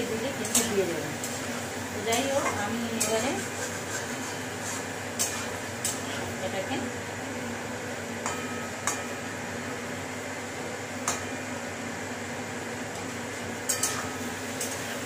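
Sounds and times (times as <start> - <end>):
metal spatula scraping steel pan: 2.2 - 6.2.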